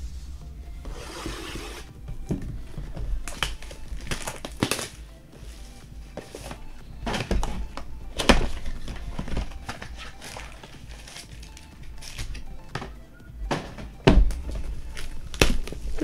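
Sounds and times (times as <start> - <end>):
cards being handled: 0.4 - 16.0
foil wrappers tearing and crinkling: 3.2 - 5.0, 5.6 - 12.5, 14.8 - 16.0.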